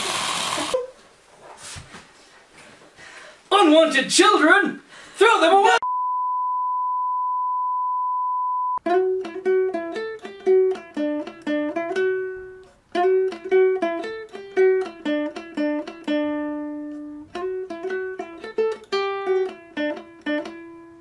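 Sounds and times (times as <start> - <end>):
steady test-tone beep: 5.8 - 8.8
plucked-string melody: 8.8 - 21.0.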